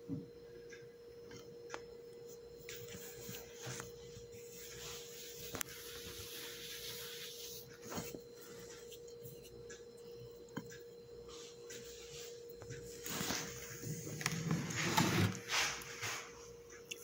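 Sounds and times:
faint steady hum: 0.0 - 17.0
hand brushing flour on countertop: 2.6 - 9.6, 11.2 - 16.5.

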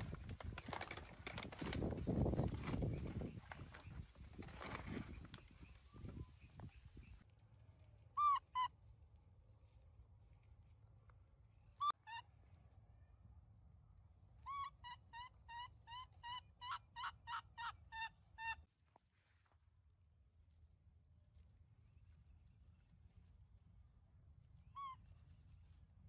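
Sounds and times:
baby monkey high-pitched calls: 8.2 - 8.8, 11.8 - 12.2, 14.4 - 18.6, 24.7 - 25.1.

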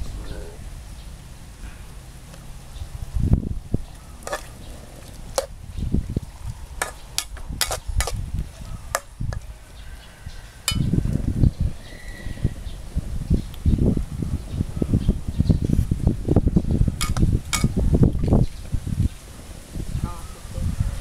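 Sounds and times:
metal spatula clinking on wok: 10.7 - 10.9.

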